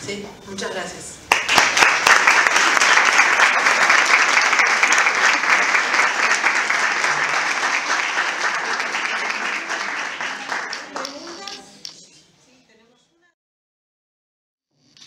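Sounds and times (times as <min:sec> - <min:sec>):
audience applauding: 0:01.3 - 0:11.7.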